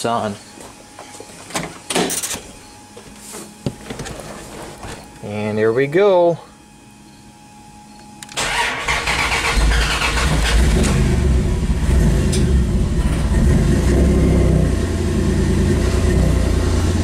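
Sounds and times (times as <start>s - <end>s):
starter motor cranking: 8.3s - 11.2s.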